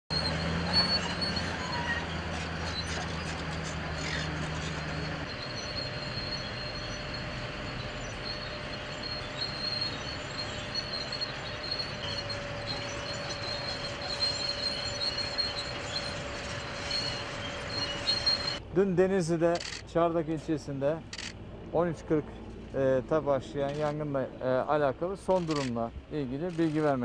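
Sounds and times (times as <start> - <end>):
low machine hum: 0.1 - 18.6
thin high-pitched whine: 0.1 - 18.6.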